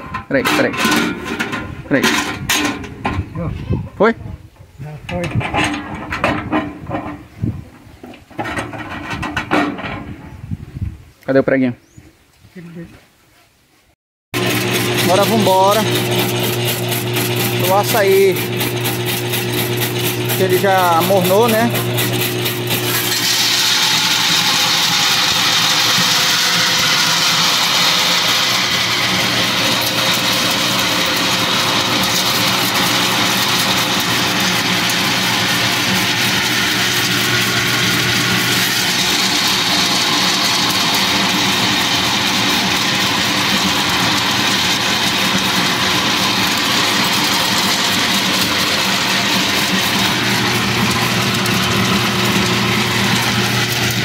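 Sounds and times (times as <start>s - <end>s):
pulping machine motor whirring: 14.4s - 54.0s.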